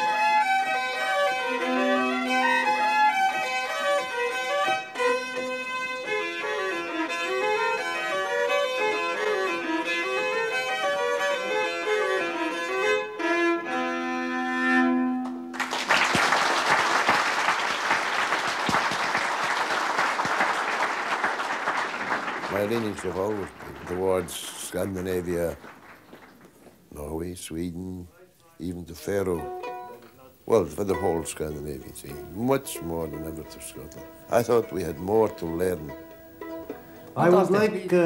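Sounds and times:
fiddles playing folk tune: 0:00.0 - 0:15.5, 0:21.1 - 0:26.2, 0:29.0 - 0:38.0
audience applause: 0:15.5 - 0:26.7.

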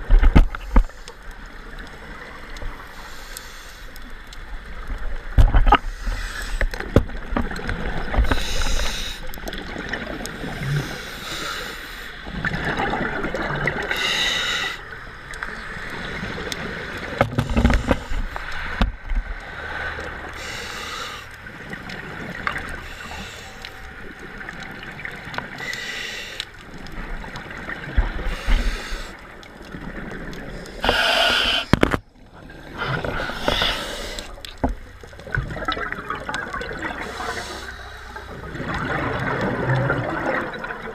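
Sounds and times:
gurgling bubbles underwater: 0:04.0 - 0:25.8, 0:26.5 - 0:40.9
hissing regulator breath: 0:08.3 - 0:09.4, 0:13.9 - 0:14.9, 0:20.4 - 0:21.3, 0:25.6 - 0:26.5, 0:28.2 - 0:29.2, 0:30.5 - 0:32.0, 0:32.9 - 0:34.4, 0:37.0 - 0:38.3.

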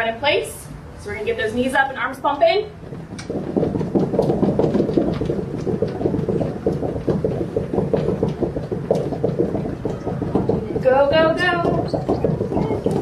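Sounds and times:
feet stamping on carpet: 0:02.8 - 0:13.0.

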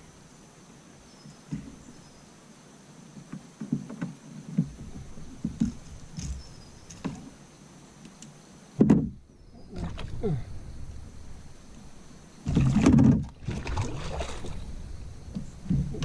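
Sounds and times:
knocks on canoe hull: 0:03.2 - 0:07.3, 0:08.8 - 0:09.2.

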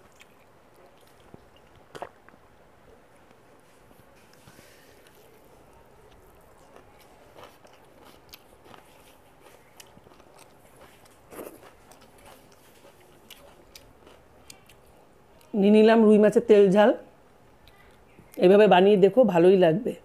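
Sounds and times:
chewing: 0:00.0 - 0:02.4, 0:04.3 - 0:15.5.

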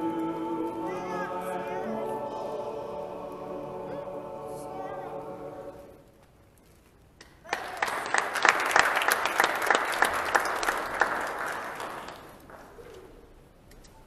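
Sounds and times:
crowd applauding in a hall: 0:07.3 - 0:12.8.

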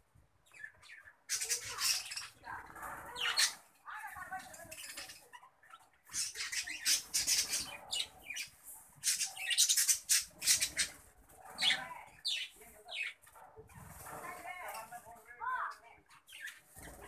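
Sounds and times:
budgerigars chirping: 0:00.5 - 0:13.3.

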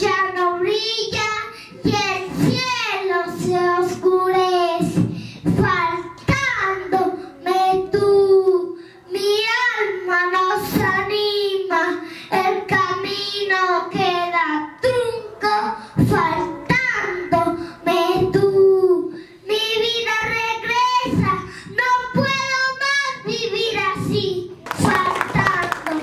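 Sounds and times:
boy singing into microphone: 0:00.0 - 0:26.0.

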